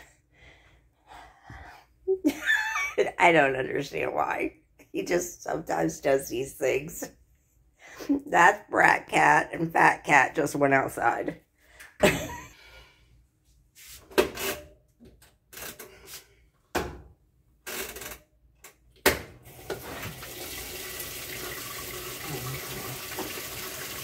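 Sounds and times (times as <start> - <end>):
knocks and clicks of washing machine: 18.9 - 20.3
water rushing into drum: 19.5 - 24.0.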